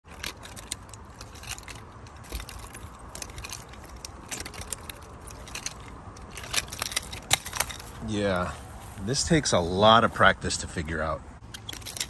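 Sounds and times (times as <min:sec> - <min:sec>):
nunchaku chain rattling: 0:00.0 - 0:08.4, 0:11.5 - 0:12.0.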